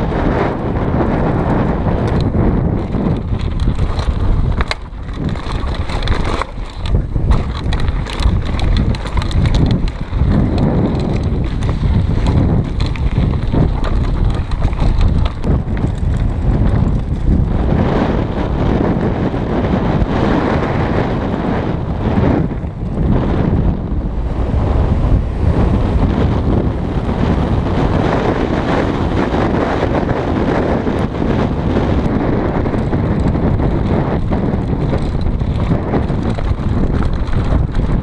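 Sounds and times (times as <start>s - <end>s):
bike rattling and clattering: 0.0s - 38.0s
wind buffeting microphone: 0.0s - 38.0s
tyres on dirt and gravel: 0.1s - 21.3s, 25.5s - 38.0s.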